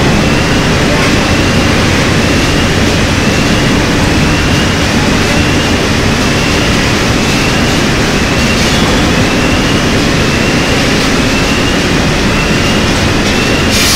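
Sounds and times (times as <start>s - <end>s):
industrial machinery roar: 0.0s - 13.9s.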